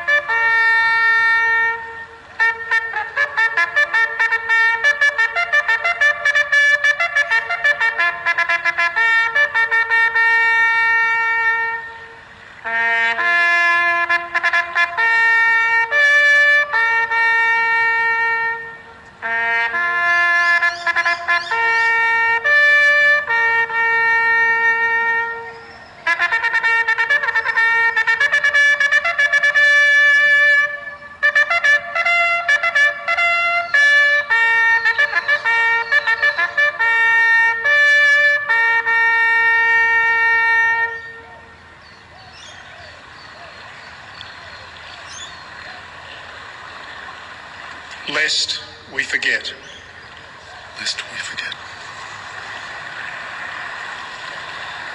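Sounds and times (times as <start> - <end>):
bugle call: 0.0 - 54.9
birds chirping and calling: 20.4 - 22.1, 25.4 - 26.1, 34.7 - 36.6, 41.0 - 47.1, 47.8 - 52.2.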